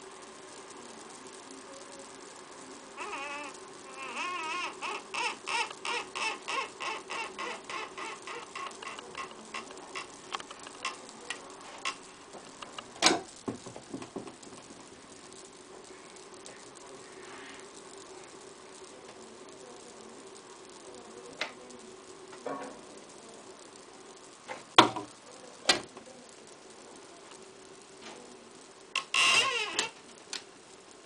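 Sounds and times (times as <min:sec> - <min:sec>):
wooden doors squeaking open: 0:03.0 - 0:10.2, 0:29.0 - 0:30.0.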